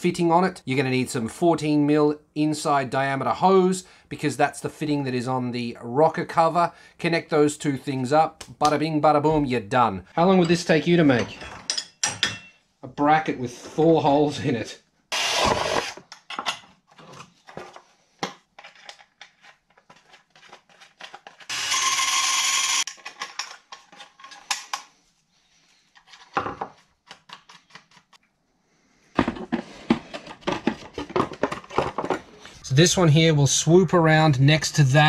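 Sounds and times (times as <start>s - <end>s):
metal tools clinking and knocking: 10.2s - 12.6s.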